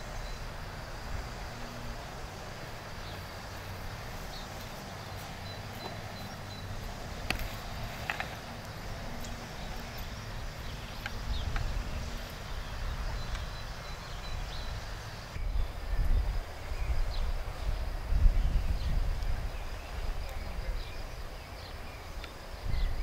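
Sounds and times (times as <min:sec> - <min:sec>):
wind rumbling on microphone: 0:00.0 - 0:23.0
bird chirps: 0:03.0 - 0:08.5, 0:09.2 - 0:17.3.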